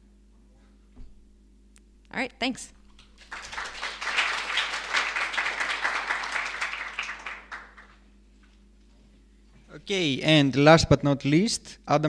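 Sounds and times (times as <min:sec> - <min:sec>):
audience applauding: 0:03.0 - 0:08.0.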